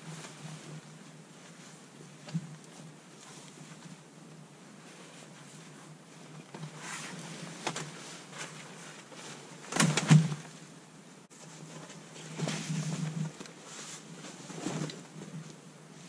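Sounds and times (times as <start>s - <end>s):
fabric rustling and flapping: 0.0s - 16.0s.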